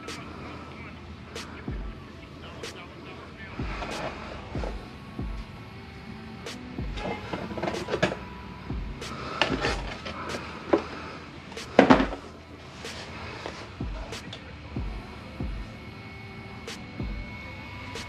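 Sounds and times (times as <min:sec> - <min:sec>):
objects knocking and clattering: 0:11.7 - 0:12.3.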